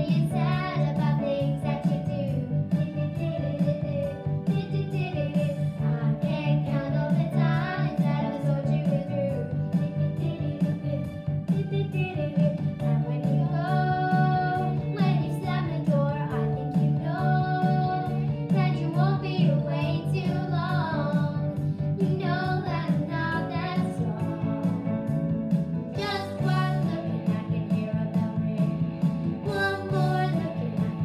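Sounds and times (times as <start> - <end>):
backing music with guitar and beat: 0.0 - 31.0
girls singing together: 26.0 - 27.4, 29.5 - 31.0.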